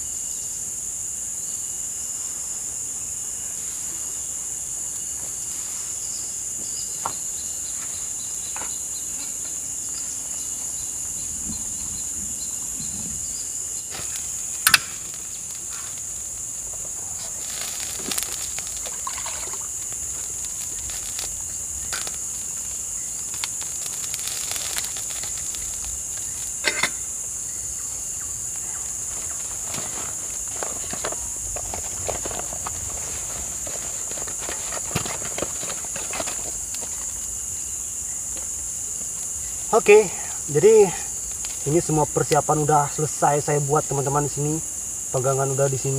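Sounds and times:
insect chorus: 0.0s - 45.9s.

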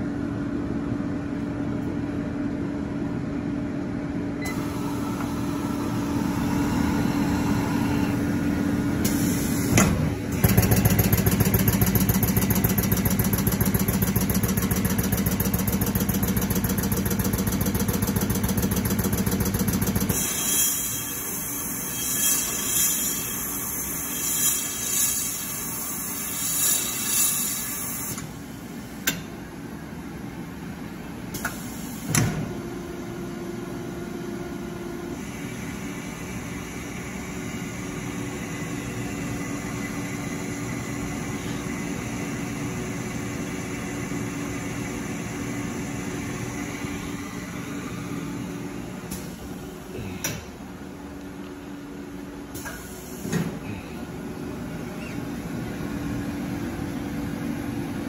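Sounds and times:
machine humming: 32.6s - 52.6s.

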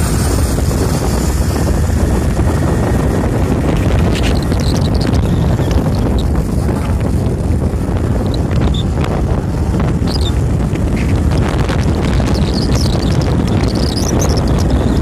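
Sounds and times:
vehicle engine and tyres rumbling: 0.0s - 15.0s
wind buffeting microphone: 0.0s - 15.0s.

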